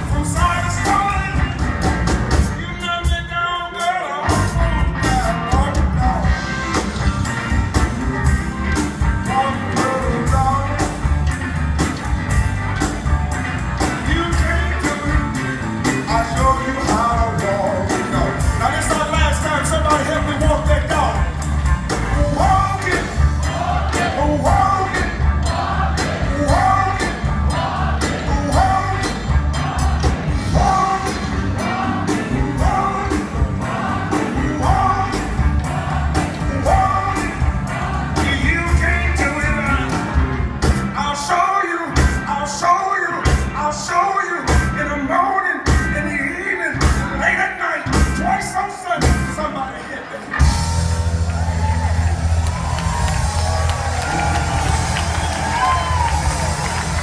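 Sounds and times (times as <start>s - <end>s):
man singing: 0.0s - 1.7s, 2.4s - 6.7s, 9.2s - 11.0s, 13.8s - 21.4s, 22.0s - 25.2s, 26.2s - 27.3s, 28.0s - 29.3s, 30.4s - 35.5s, 36.4s - 40.2s, 40.9s - 50.4s
drum kit beat: 0.0s - 44.9s, 45.6s - 46.2s, 46.8s - 49.5s, 50.4s - 57.0s.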